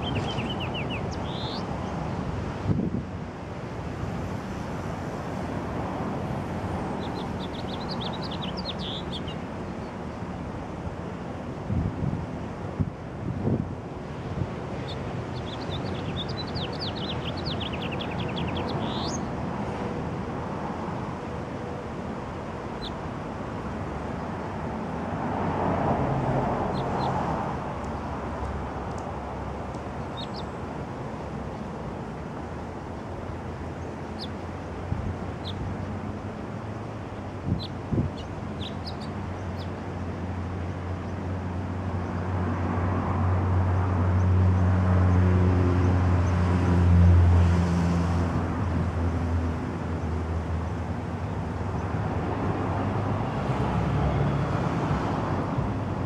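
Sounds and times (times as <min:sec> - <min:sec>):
songbird singing and chirping: 0:00.0 - 0:02.2, 0:07.0 - 0:10.0, 0:14.8 - 0:19.4, 0:22.7 - 0:23.0, 0:29.7 - 0:30.7, 0:33.7 - 0:34.8, 0:35.4 - 0:36.0, 0:36.6 - 0:40.1
traffic noise: 0:00.0 - 0:56.0
wind: 0:00.0 - 0:56.0.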